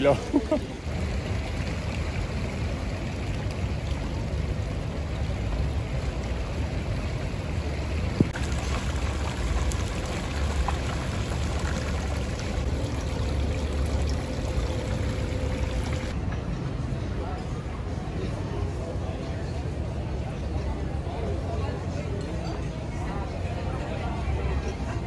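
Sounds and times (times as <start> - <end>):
fountain water splashing: 0.0 - 16.2.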